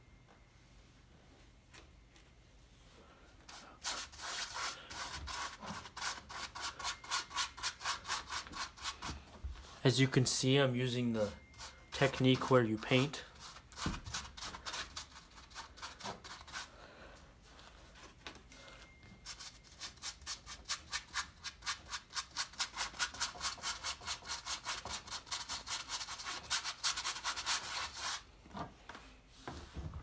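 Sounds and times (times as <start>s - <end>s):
paintbrush scrubbing on canvas: 3.5s - 9.1s.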